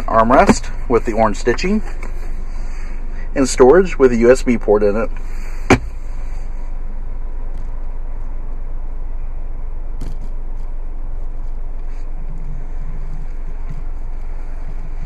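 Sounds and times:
car cabin rumble and hiss: 0.0s - 15.0s.

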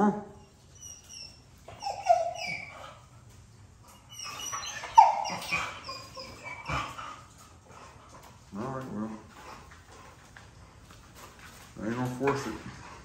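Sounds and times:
puppies whining and yelping: 0.4s - 7.6s.

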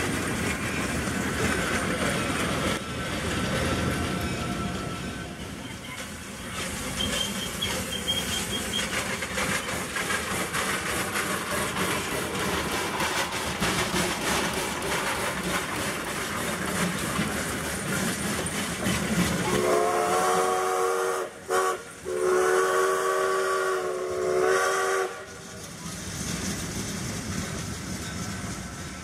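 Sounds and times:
steam locomotive hissing: 0.0s - 29.0s
steam whistle blasts: 19.4s - 25.4s.

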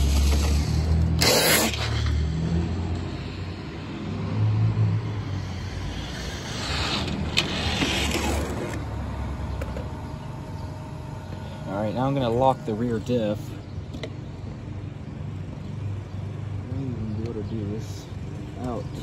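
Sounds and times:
car tyre hiss: 0.0s - 3.8s, 5.1s - 8.4s
rc truck passing: 0.0s - 13.6s.

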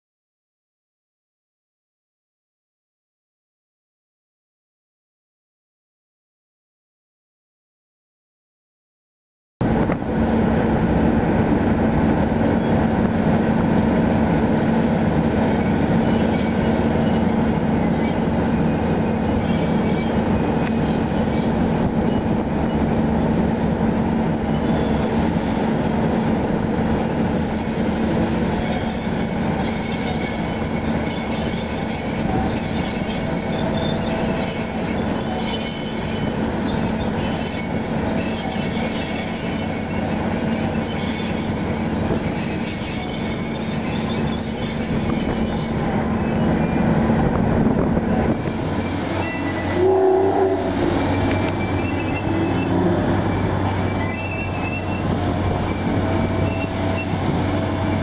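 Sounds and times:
low engine drone and rumble: 9.6s - 28.6s, 45.9s - 58.0s
steel wheels squealing on rails: 12.3s - 58.0s.

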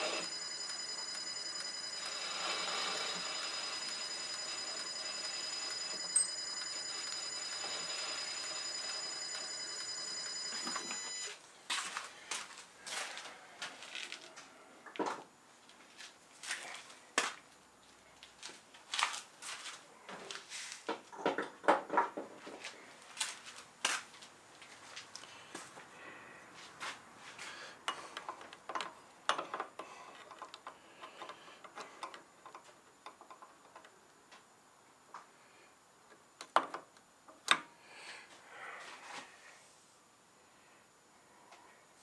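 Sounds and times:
metal lathe running: 0.0s - 11.2s.

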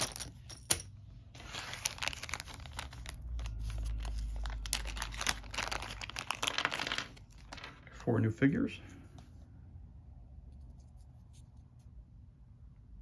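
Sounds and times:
plastic bags crinkling: 1.4s - 8.2s.

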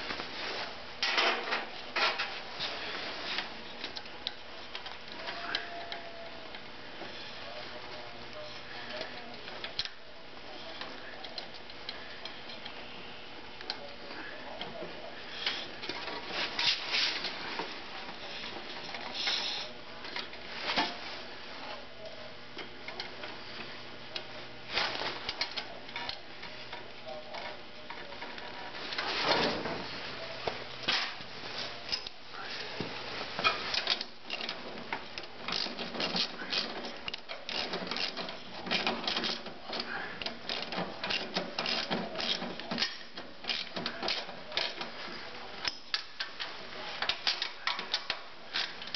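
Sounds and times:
light clicks of metal parts: 10.6s - 12.8s, 33.4s - 44.9s.

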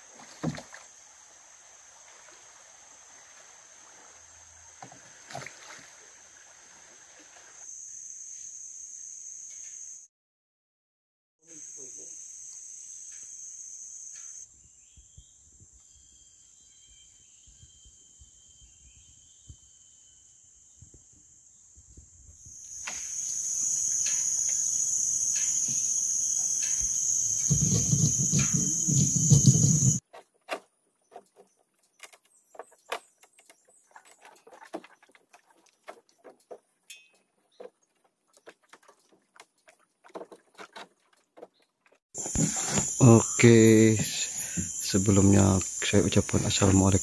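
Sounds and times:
forest insects droning: 0.0s - 10.1s, 11.4s - 30.0s, 42.2s - 47.0s.

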